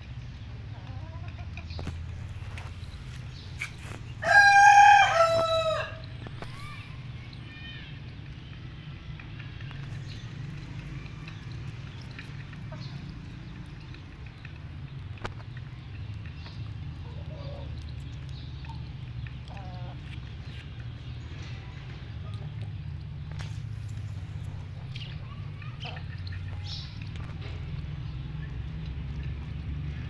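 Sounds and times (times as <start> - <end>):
hens clucking softly: 0.7 - 6.5
rooster crowing: 4.2 - 6.1.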